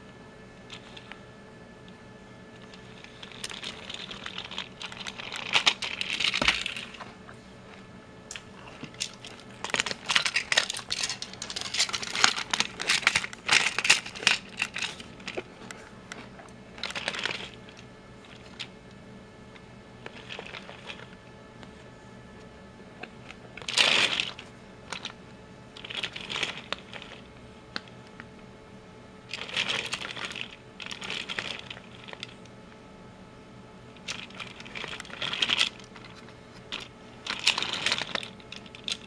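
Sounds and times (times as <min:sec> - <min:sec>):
plastic toy parts clicking: 0:09.0 - 0:15.4.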